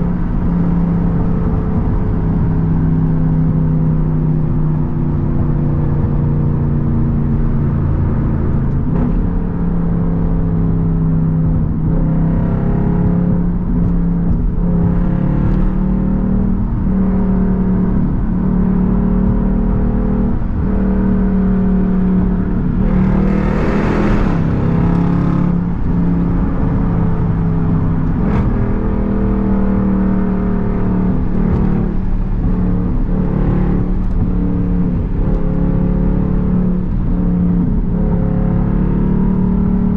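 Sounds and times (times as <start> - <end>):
exhaust droning from inside car: 24.4 - 39.9.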